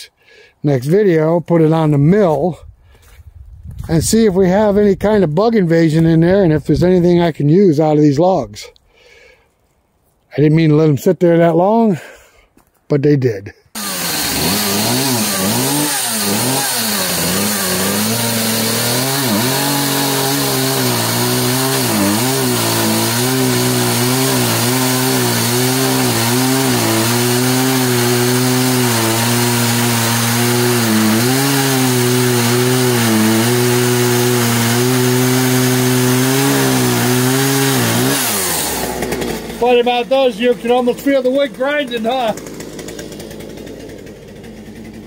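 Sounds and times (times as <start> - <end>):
chainsaw cutting wood: 13.7 - 45.0.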